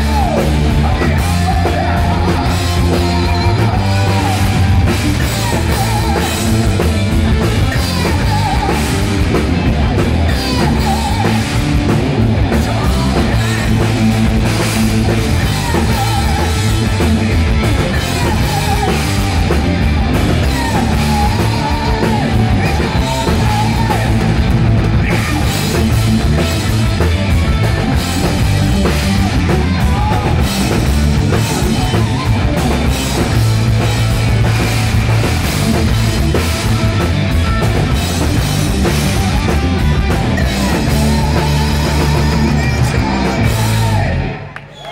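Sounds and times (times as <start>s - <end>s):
person singing: 0.0s - 9.5s, 10.3s - 11.9s, 12.5s - 26.0s, 28.0s - 33.5s, 38.9s - 44.5s
drum kit: 0.0s - 44.9s
electric guitars: 0.0s - 44.9s.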